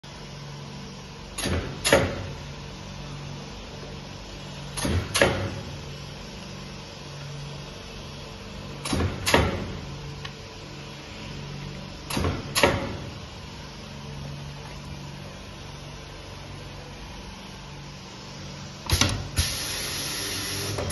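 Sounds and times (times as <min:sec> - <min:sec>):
steady machine hum: 0:00.0 - 0:20.9
die-cutting machine clunks: 0:01.4 - 0:02.3, 0:04.8 - 0:05.6, 0:08.8 - 0:09.8, 0:12.1 - 0:13.1, 0:18.9 - 0:19.7.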